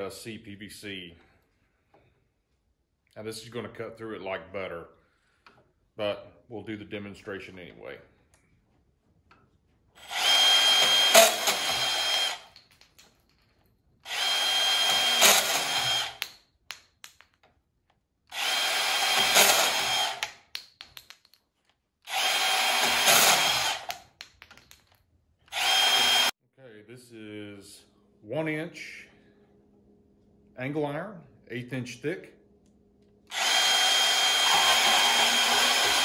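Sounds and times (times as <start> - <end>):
bandsaw cutting pipe: 10.0 - 12.7, 14.0 - 16.4, 18.3 - 20.4, 22.1 - 24.2, 25.5 - 26.3, 33.3 - 36.0.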